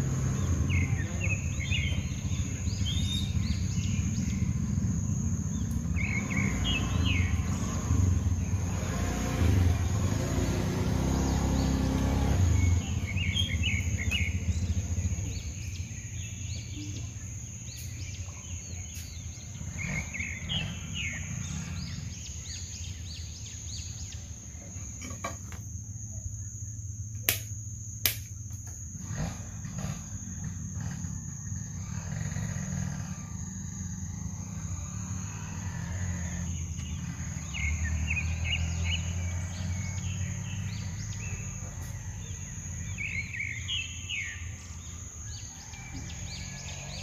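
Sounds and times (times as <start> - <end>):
high-pitched insect drone: 0.0 - 47.0
bird-like chirps: 0.3 - 27.4, 29.0 - 47.0
sharp clicks: 27.2 - 28.8.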